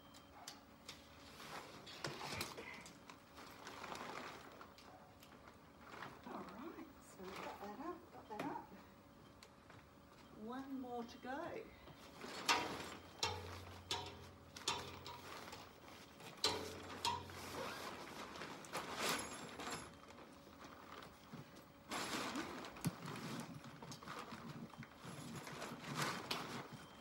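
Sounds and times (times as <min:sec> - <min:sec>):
nylon fabric rustling: 0:01.3 - 0:08.0, 0:14.7 - 0:27.0
tent poles clicking and knocking: 0:12.4 - 0:18.3.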